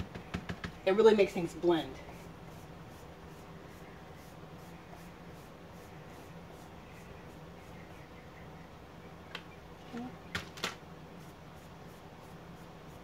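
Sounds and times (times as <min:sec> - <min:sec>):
low room hum: 0:00.0 - 0:13.0
paintbrush scratching on wood: 0:01.8 - 0:07.9, 0:11.1 - 0:13.0.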